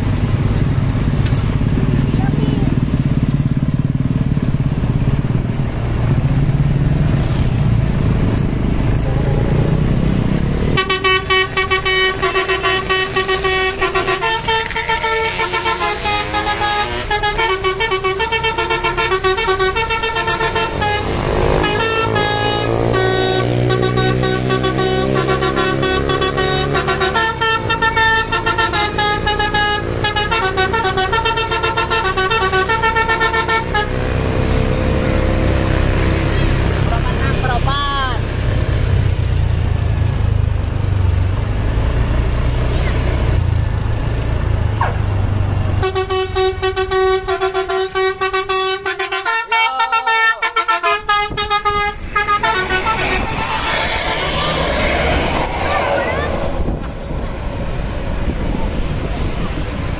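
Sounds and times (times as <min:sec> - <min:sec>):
bus horn playing melody: 0:10.6 - 0:34.8, 0:45.7 - 0:55.5
low engine rumble: 0:50.2 - 0:59.9.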